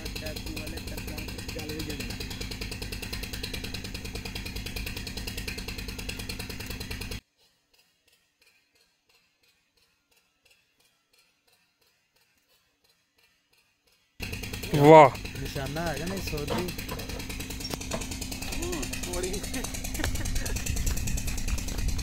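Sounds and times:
pulsing mechanical drone: 14.2s - 22.0s.

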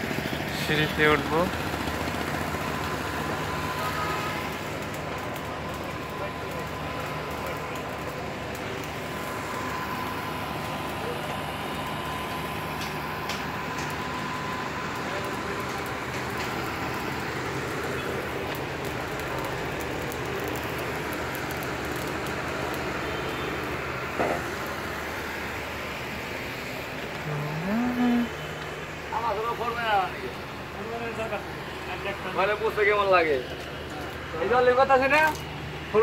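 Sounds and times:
construction machinery hum and rumble: 0.0s - 36.0s
high machinery whine: 0.0s - 36.0s.

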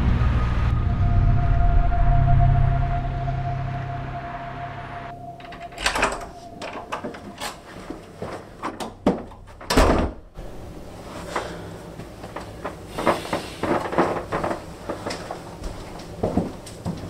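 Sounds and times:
door handle and latch clicks: 5.4s - 7.6s
door shutting thud: 5.4s - 7.6s, 8.7s - 10.3s
footsteps: 6.4s - 9.6s, 10.9s - 17.0s.

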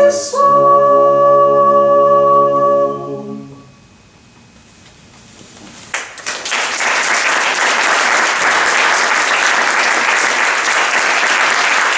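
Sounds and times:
audience applauding: 5.9s - 11.9s.

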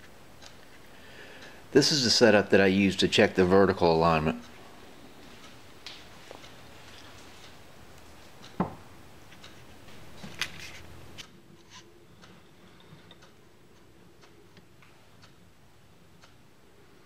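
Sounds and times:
faint ticks of dial indicator: 12.2s - 15.4s, 16.2s - 16.4s.

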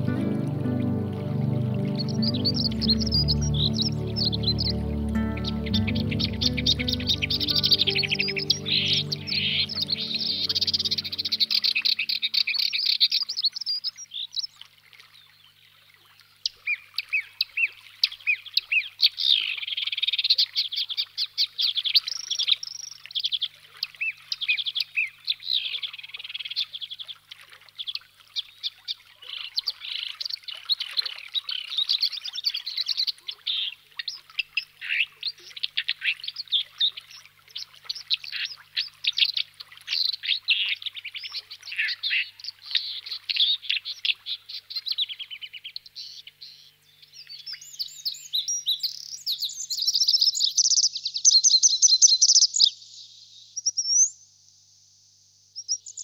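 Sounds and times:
songbirds chirping and trilling: 0.0s - 14.4s.

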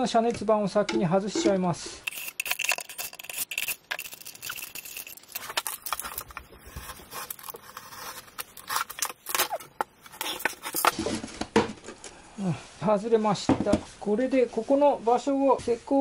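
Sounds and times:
thin metal sheet crinkling: 2.0s - 11.4s.

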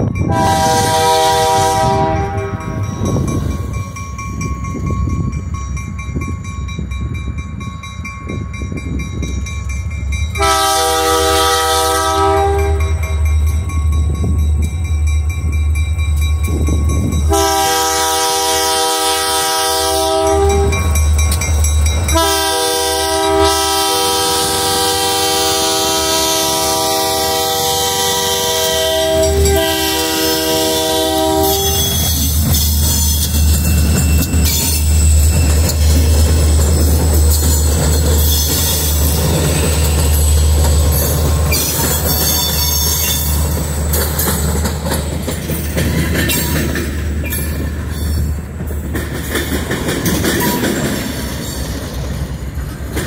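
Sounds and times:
locomotive rumble: 0.0s - 53.0s
train wheel noise: 0.0s - 53.0s
locomotive air horn blasts: 0.3s - 3.0s, 10.4s - 13.0s, 17.3s - 21.0s, 22.1s - 32.0s.

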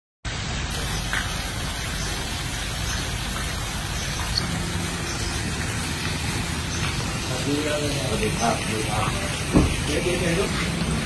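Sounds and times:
steady rushing noise: 2.4s - 11.0s.

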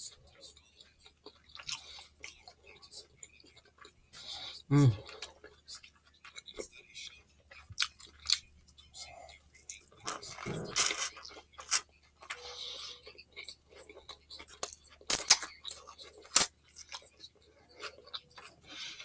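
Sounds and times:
wet chewing and mouth clicks: 0.4s - 12.4s, 13.0s - 19.0s.

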